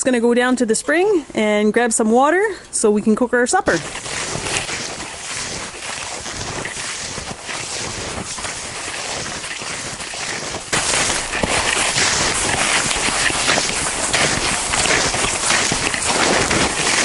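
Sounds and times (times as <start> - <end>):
footsteps through snow: 3.7 - 17.0.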